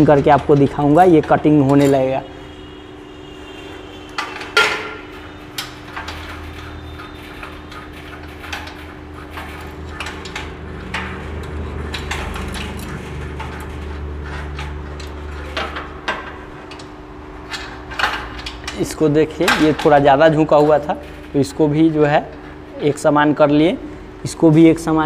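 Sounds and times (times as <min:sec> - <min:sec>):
low hum: 0:05.2 - 0:18.7.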